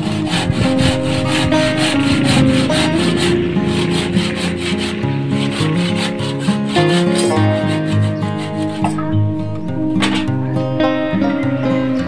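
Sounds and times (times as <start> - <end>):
handsaw cutting wood: 0.0 - 9.0
background music: 0.0 - 12.0.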